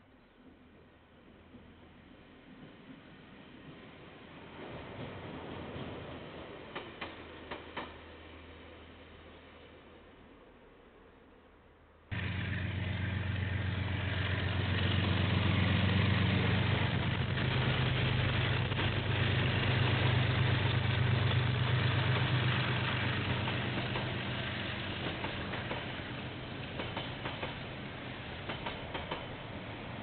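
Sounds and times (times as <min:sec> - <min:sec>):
diesel locomotive passing: 0:12.1 - 0:30.0.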